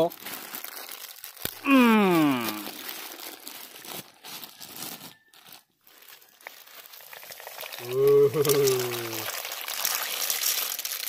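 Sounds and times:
plastic packet crinkling: 0.0s - 11.0s.

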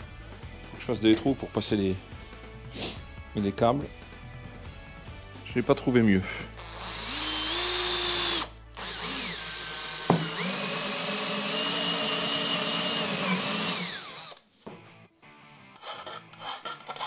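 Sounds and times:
cordless drill whining: 6.6s - 14.4s.

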